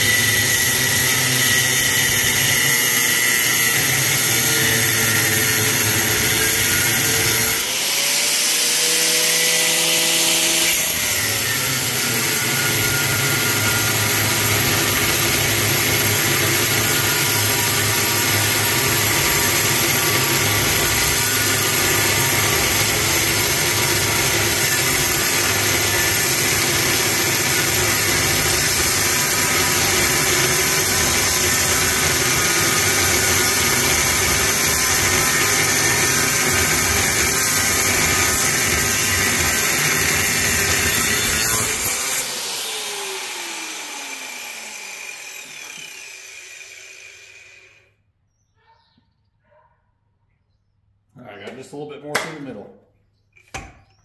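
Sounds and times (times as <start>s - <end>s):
angle grinder cutting metal: 0.0s - 47.9s.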